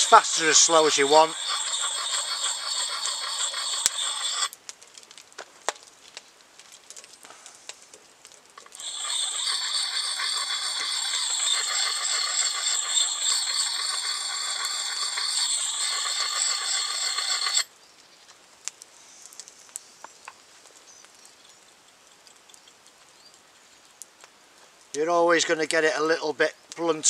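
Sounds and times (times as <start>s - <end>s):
axe puck rasping on steel edge: 0.0s - 4.5s, 8.7s - 17.7s.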